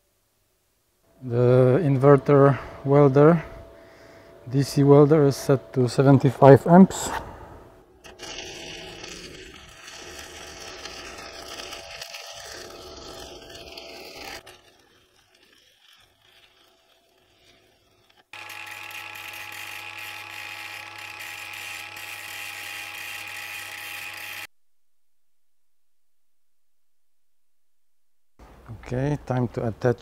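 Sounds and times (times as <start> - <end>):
angle grinder grinding metal: 7.9 - 24.5
arc welding crackle and hiss: 8.0 - 24.5.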